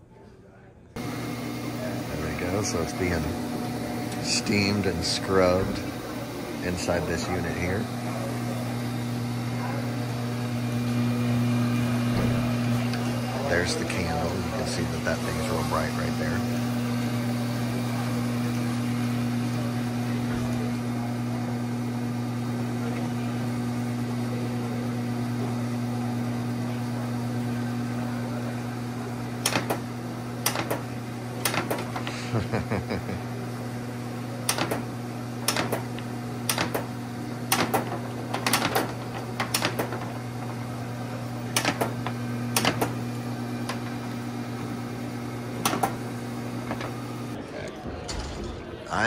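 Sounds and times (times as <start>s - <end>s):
machine electric hum: 0.9s - 49.0s.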